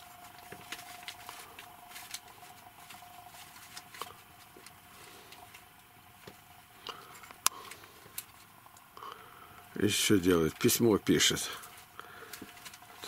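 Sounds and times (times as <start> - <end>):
cats rustling on blankets: 0.0 - 8.6
faint steady hum: 0.0 - 13.0.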